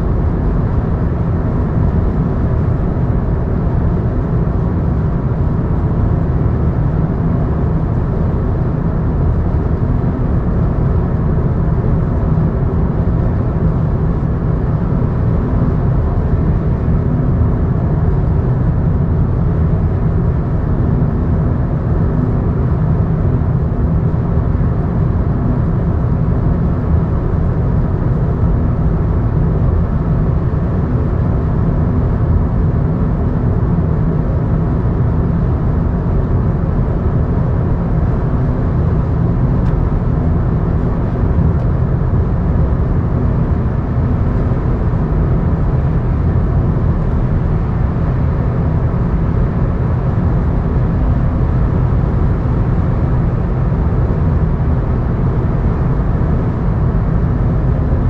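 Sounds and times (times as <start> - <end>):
vehicle engine and road noise: 0.0 - 58.0.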